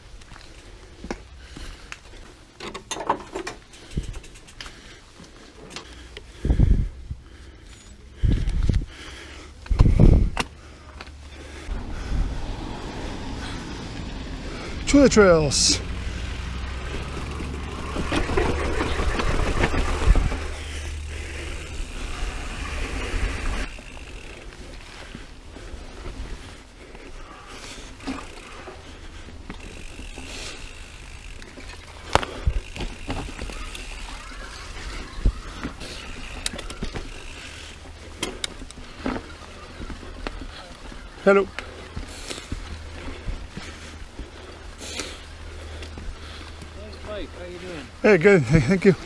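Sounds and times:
bike freewheel ticking and rattling: 2.8s - 5.0s, 5.7s - 40.4s.

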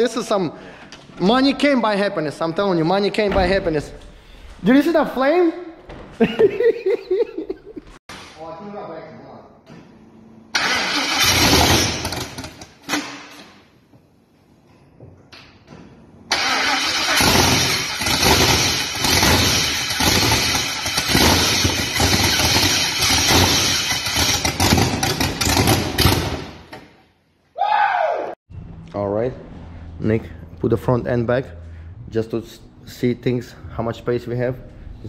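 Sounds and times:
car engine starting and running: 10.5s - 12.9s, 16.3s - 26.4s, 28.5s - 35.0s.

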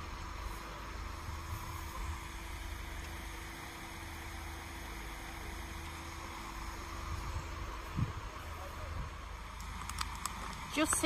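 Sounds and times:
distant construction machinery hum: 0.0s - 11.0s
wind rumbling on microphone: 7.0s - 11.0s.

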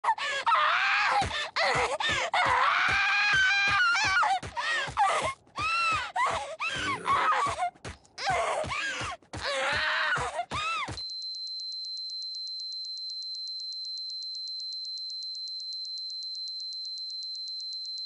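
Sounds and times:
person wailing and crying: 0.1s - 11.0s.

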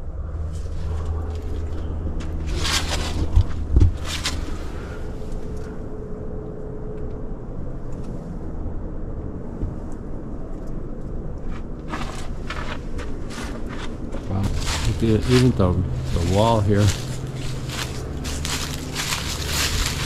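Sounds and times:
steady low rumble: 0.0s - 20.0s
footsteps crunching on leaves: 0.6s - 4.8s, 11.8s - 20.0s.

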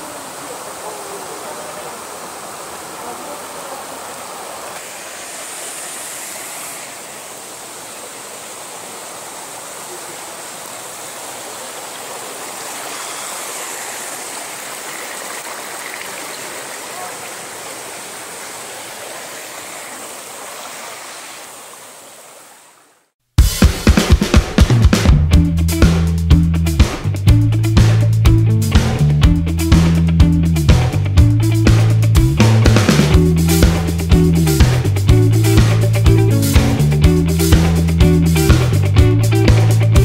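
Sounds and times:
water rushing over rocks: 0.0s - 23.1s.

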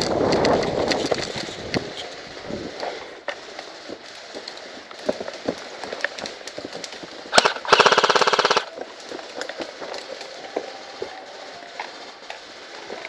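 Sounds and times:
sharp crack: 2.8s - 10.4s
toy gun full-auto burst: 7.3s - 8.7s.

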